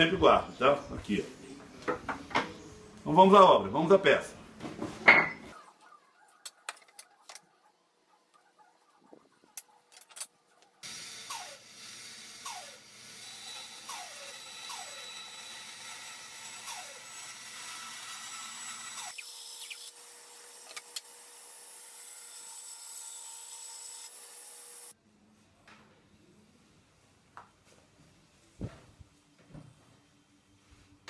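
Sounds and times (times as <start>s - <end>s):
band saw cutting wood: 10.8s - 24.9s.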